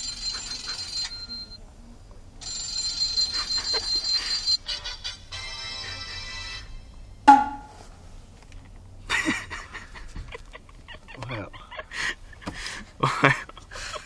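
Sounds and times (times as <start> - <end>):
phone alarm melody: 2.4 - 5.0.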